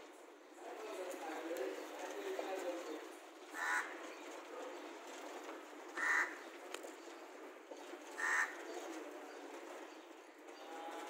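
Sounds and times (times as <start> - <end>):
crow cawing: 3.6 - 4.0, 6.0 - 6.4, 8.2 - 8.6.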